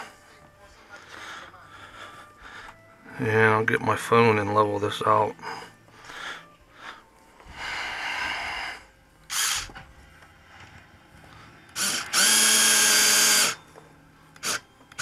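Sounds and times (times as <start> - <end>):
cordless drill whirring: 9.3 - 9.8, 11.7 - 13.6, 14.4 - 15.0.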